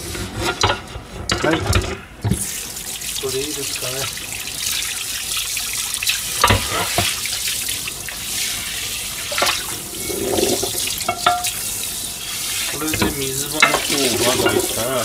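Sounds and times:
tap running into sink: 0:01.3 - 0:02.6, 0:06.0 - 0:07.2, 0:12.7 - 0:14.9
frying pan rubbed under water: 0:06.3 - 0:15.0
pan knocking against sink: 0:06.4 - 0:07.2, 0:10.3 - 0:11.6, 0:12.8 - 0:14.9.

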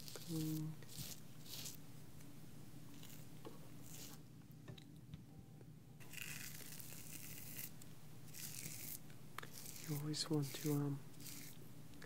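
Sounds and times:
razor scraping through shaving cream: 0:00.0 - 0:01.8, 0:03.0 - 0:04.2, 0:06.0 - 0:11.6.

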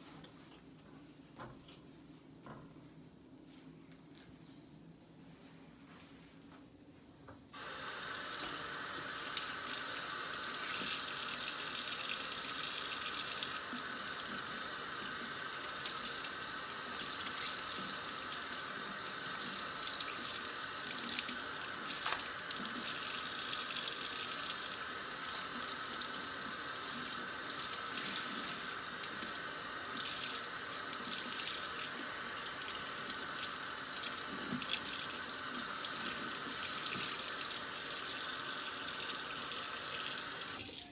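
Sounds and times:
faucet water splashing: 0:07.6 - 0:40.9.

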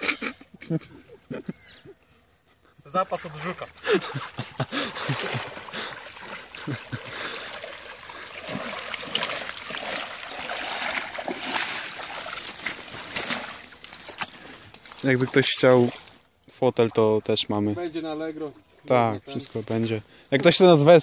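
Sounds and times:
water splashing and trickling: 0:02.9 - 0:21.0
water sloshing around legs: 0:03.3 - 0:16.2.

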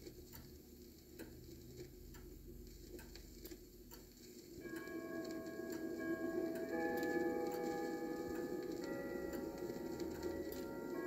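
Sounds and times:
vinyl crackle: 0:00.0 - 0:11.0
church bells chiming: 0:04.6 - 0:11.0.

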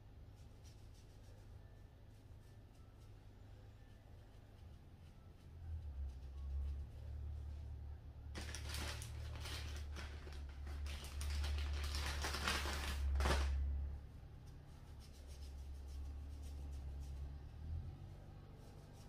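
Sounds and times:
small objects rustling: 0:08.3 - 0:13.7.

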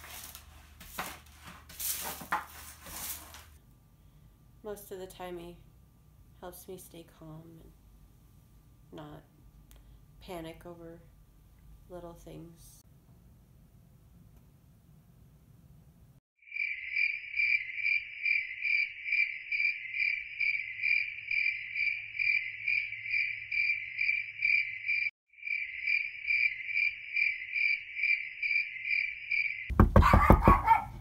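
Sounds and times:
crickets chirping: 0:16.5 - 0:29.7.

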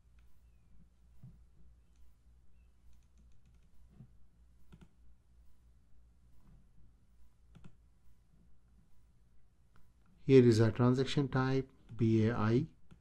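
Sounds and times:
steady low hum: 0:00.0 - 0:13.0
mouse and keyboard clicks: 0:02.8 - 0:05.0, 0:07.5 - 0:07.8.

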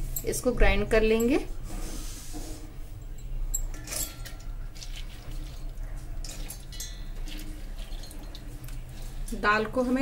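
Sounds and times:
spoon clinks: 0:03.0 - 0:04.8, 0:06.2 - 0:08.4
spoon scraping bowl: 0:03.8 - 0:09.2.

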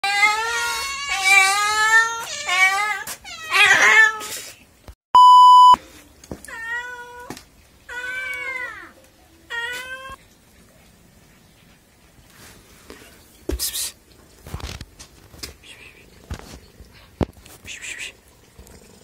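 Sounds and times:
cat meowing: 0:00.0 - 0:04.3
test-tone beep: 0:05.2 - 0:05.8.

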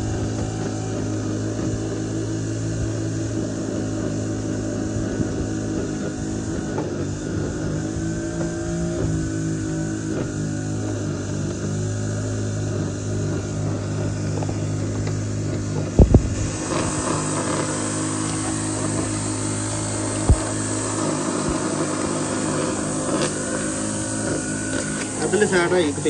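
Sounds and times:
engine running: 0:00.0 - 0:26.0
hiss: 0:16.1 - 0:26.0.

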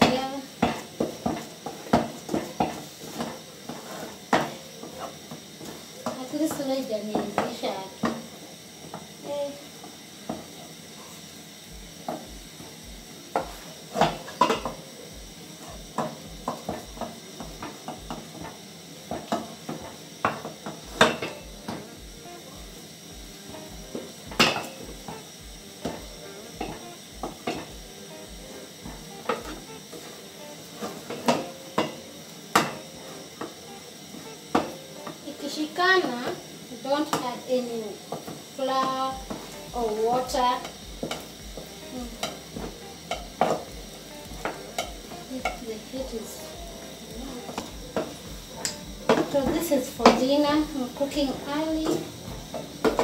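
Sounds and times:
wooden stick knocking on metal pot: 0:44.3 - 0:45.6.

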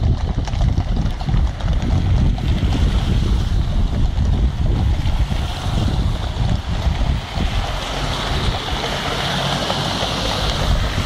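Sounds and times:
traffic rumble: 0:00.0 - 0:11.0
wind buffeting microphone: 0:00.0 - 0:11.0
car tyres hissing on wet road: 0:02.6 - 0:03.9, 0:04.5 - 0:11.0.

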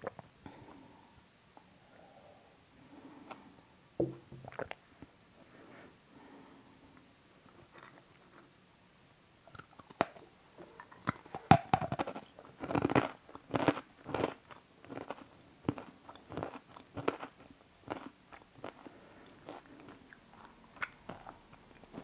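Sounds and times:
person chewing crunchy bar: 0:09.5 - 0:22.0.

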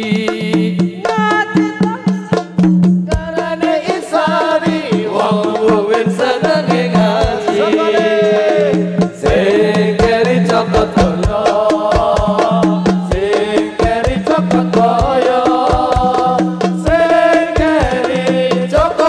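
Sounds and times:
hand percussion strikes: 0:00.0 - 0:19.0
men singing ornamented melody: 0:00.0 - 0:19.0
deep drum thumps: 0:08.2 - 0:19.0.

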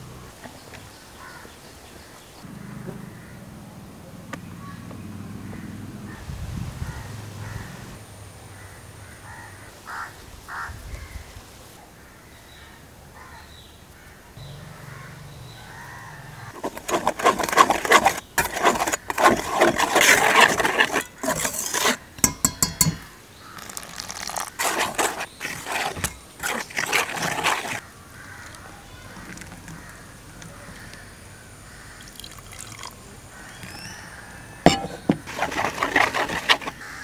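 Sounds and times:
whisk scraping metal bowl: 0:16.5 - 0:27.8, 0:34.7 - 0:37.0.

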